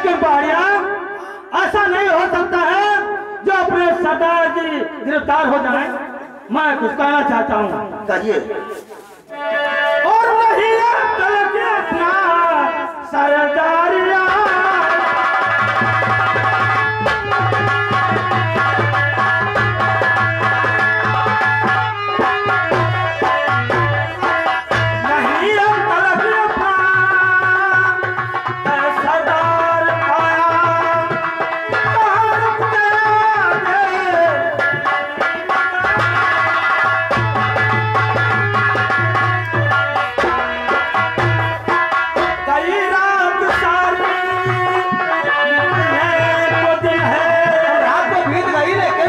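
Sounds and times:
man singing: 0.0 - 49.0
hand drums beating: 14.1 - 49.0.

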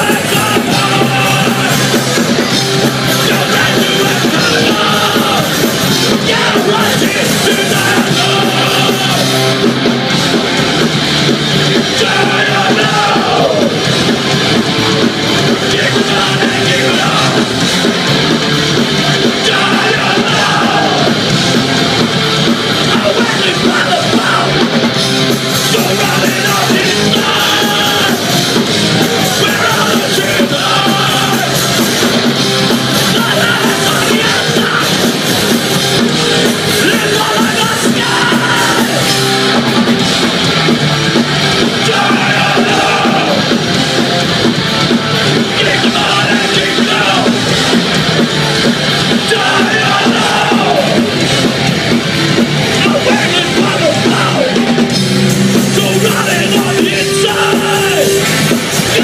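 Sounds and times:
shouted vocals: 0.0 - 2.0, 3.2 - 9.5, 11.9 - 13.8, 19.1 - 21.3, 25.7 - 31.8, 33.0 - 35.2, 36.6 - 39.3, 41.6 - 43.6, 45.4 - 47.6, 49.0 - 51.2, 52.7 - 54.7, 55.7 - 59.0
bass: 0.0 - 59.0
distorted electric guitars: 0.0 - 59.0
drums: 0.0 - 59.0.

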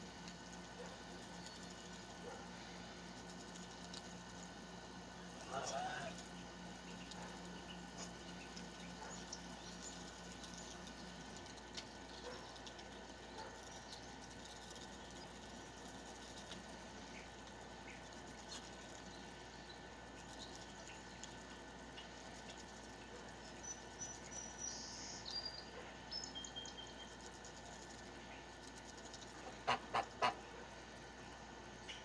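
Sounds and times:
geese pecking grain: 0.0 - 32.0
small birds chirping: 0.0 - 32.0.

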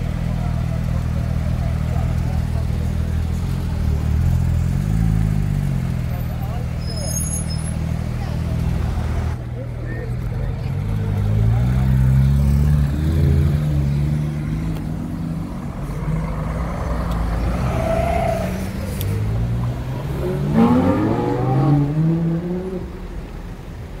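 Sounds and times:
car engine accelerating hard: 10.7 - 23.0.

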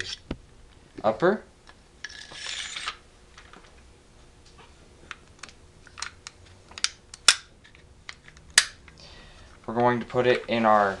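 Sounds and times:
metal scraping slide: 2.1 - 3.0.

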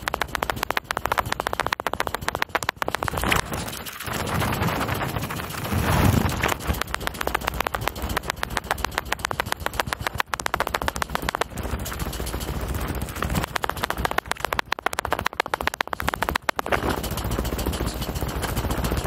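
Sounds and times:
bike rattling over gravel: 0.0 - 19.0
wind rumbling on microphone: 2.5 - 15.3.

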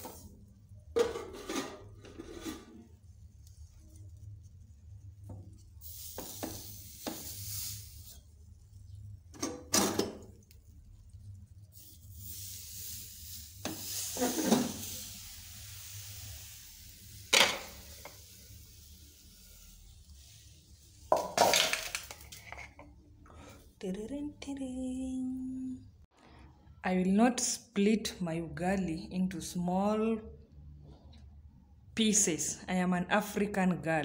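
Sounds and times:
scraping in metal pot: 1.0 - 3.0, 13.7 - 14.9, 21.1 - 22.9.

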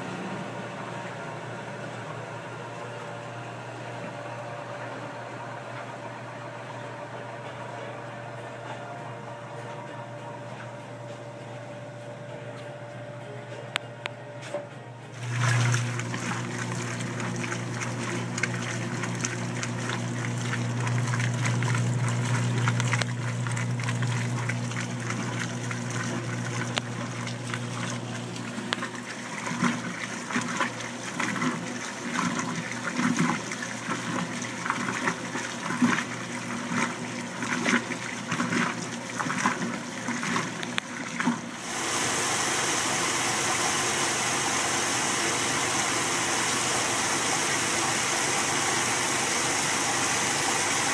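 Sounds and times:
washing machine motor hum: 0.0 - 50.9
water sloshing in washing machine: 14.5 - 50.9
water pouring into tub: 15.2 - 50.9.

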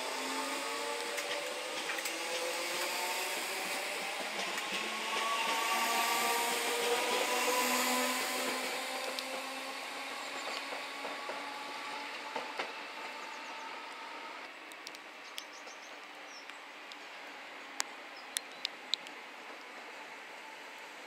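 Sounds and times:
electric train motors whining: 0.0 - 15.0.

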